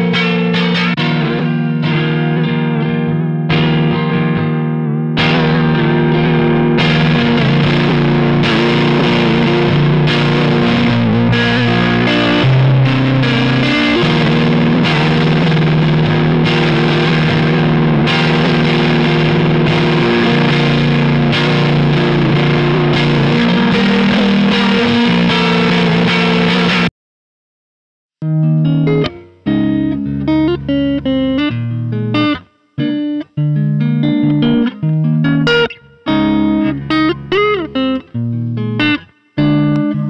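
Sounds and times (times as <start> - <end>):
electric guitar chords with vibrato: 0.0 - 26.9, 28.2 - 40.0.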